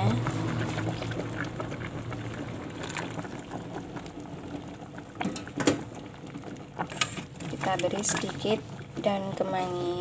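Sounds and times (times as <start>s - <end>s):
soup bubbling in a pot: 0.0s - 10.0s
coconut milk pouring: 0.2s - 5.1s.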